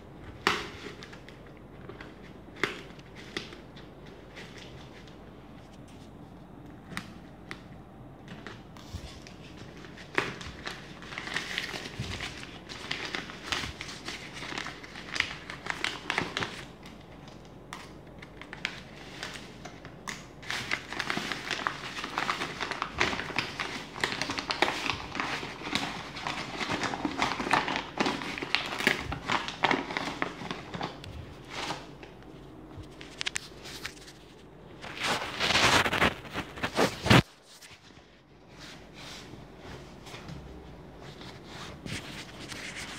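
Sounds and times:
plastic mailer bag crinkling: 0:08.3 - 0:17.5, 0:18.2 - 0:37.4.

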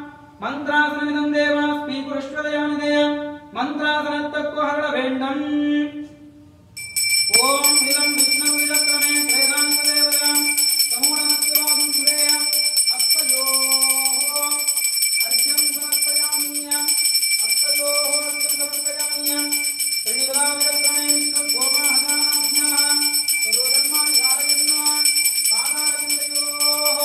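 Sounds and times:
hand bell ringing: 0:06.8 - 0:27.0
person chanting melodically: 0:07.3 - 0:27.0.

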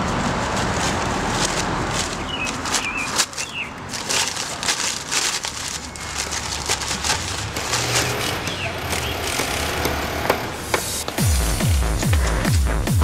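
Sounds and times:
plastic chip bag crackling: 0:00.2 - 0:10.1.

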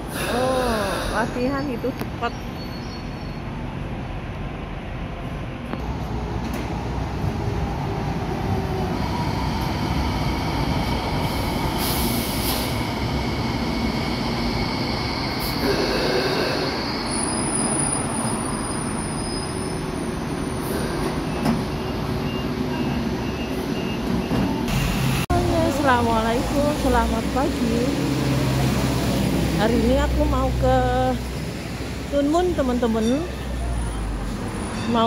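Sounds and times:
train rumble: 0:03.4 - 0:35.0
wheels squealing: 0:13.7 - 0:24.0.

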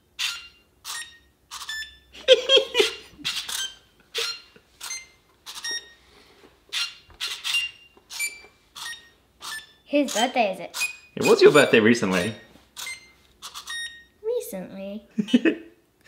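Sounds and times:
electronic beeps playing tune: 0:03.3 - 0:06.0, 0:10.8 - 0:14.1.

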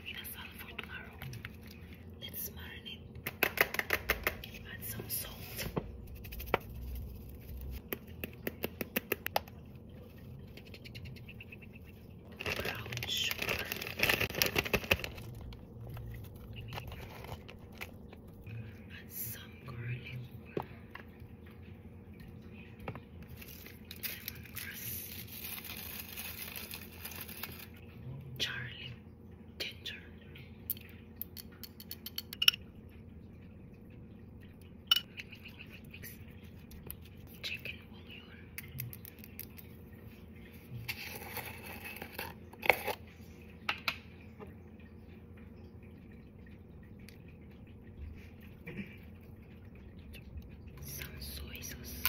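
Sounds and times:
food squishing and rustling: 0:00.6 - 0:02.2, 0:05.4 - 0:18.6, 0:22.8 - 0:27.9.

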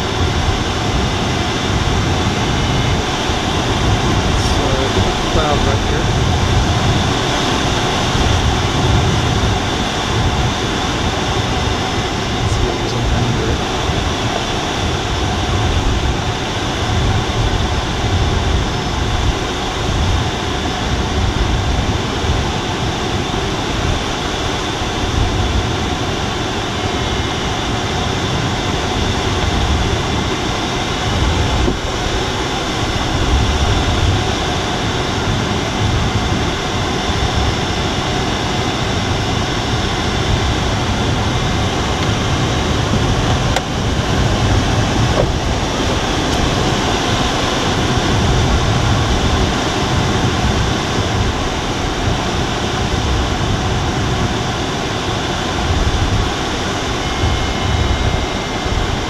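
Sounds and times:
air rushing over canopy: 0:00.0 - 0:24.1, 0:39.9 - 0:59.0
low buffeting rumble: 0:00.0 - 0:59.0.

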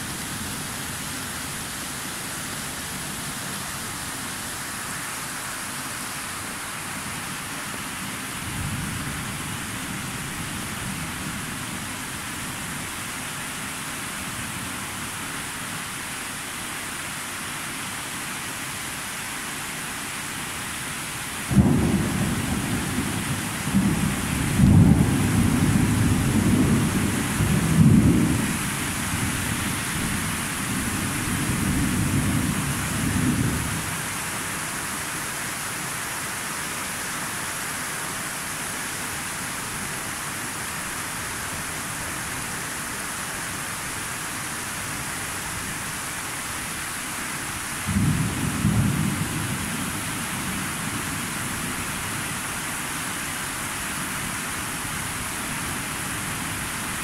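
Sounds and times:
rain hissing: 0:21.2 - 0:57.0.

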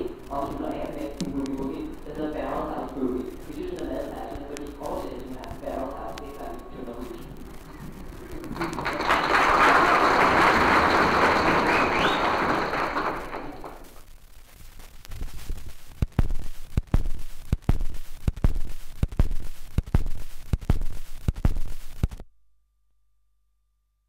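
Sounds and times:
record surface hiss: 0:00.0 - 0:22.8
stylus thumps and clicks: 0:00.1 - 0:08.8, 0:13.9 - 0:22.3.

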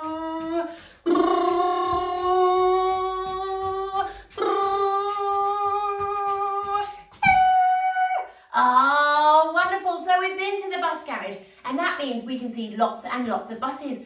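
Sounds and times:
woman humming long notes: 0:00.0 - 0:06.8.

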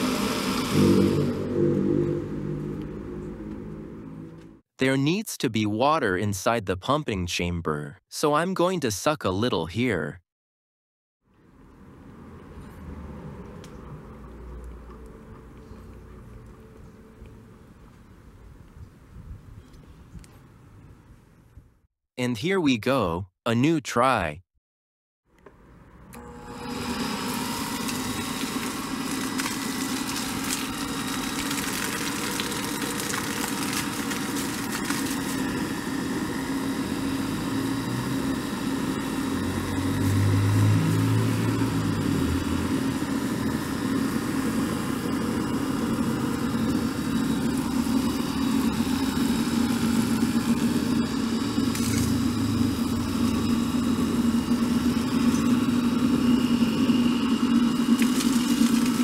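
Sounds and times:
water pump motor humming: 0:00.0 - 0:04.6, 0:26.1 - 0:59.0.

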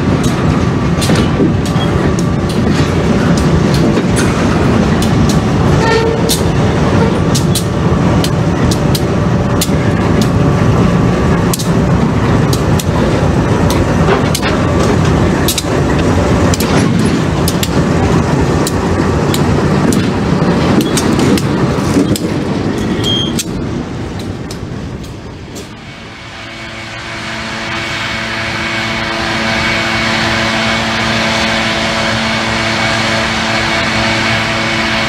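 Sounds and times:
wheels clanking on rails: 0:00.0 - 0:26.0
diesel locomotive engine running: 0:00.0 - 0:35.0.

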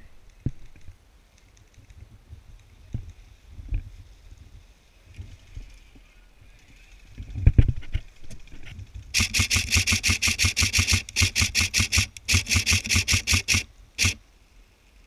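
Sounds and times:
airsoft rifle firing full auto: 0:09.2 - 0:14.2.

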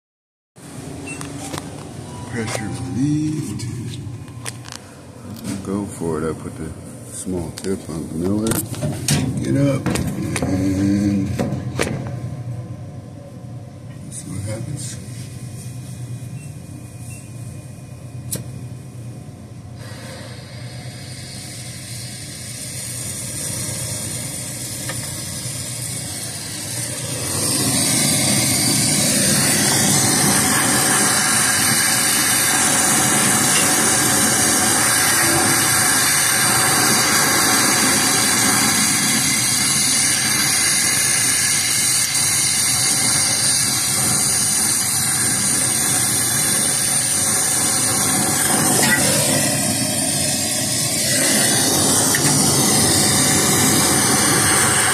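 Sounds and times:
torch flame hissing: 0:19.8 - 0:54.9.

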